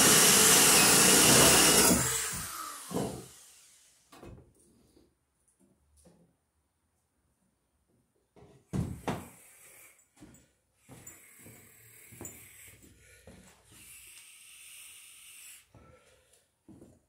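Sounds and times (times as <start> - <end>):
shuffling footsteps: 10.2 - 13.8.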